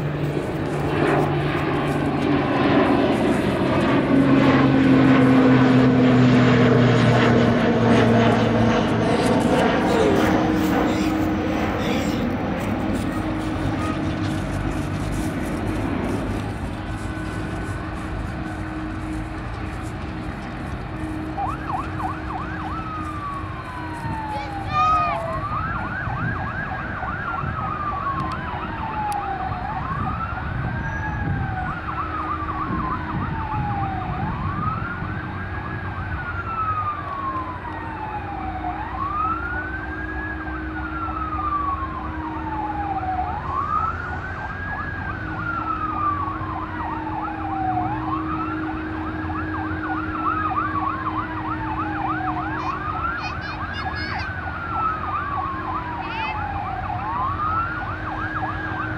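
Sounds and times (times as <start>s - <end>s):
low engine rumble: 0.0s - 27.3s
fire truck siren wailing: 0.0s - 58.9s.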